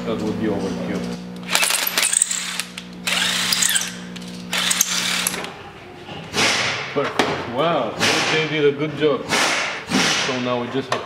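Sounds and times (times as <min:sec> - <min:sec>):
cordless drill on sheet metal: 0:01.4 - 0:05.5.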